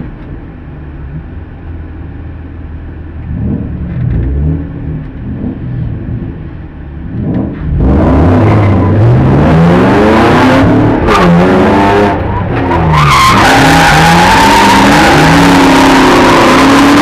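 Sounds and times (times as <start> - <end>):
car engine idling and revving: 0.0 - 17.0.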